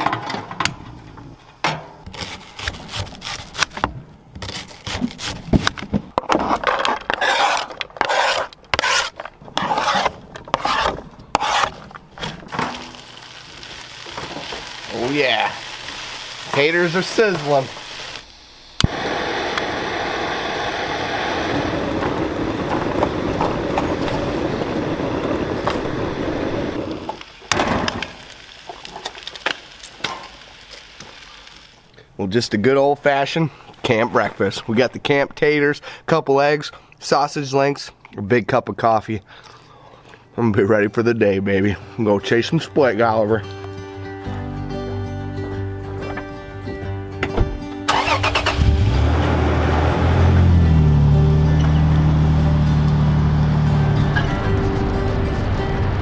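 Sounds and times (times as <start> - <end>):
spatula scraping frying pan: 7.1 - 11.9
egg sizzling in frying pan: 11.4 - 18.3, 26.7 - 31.9.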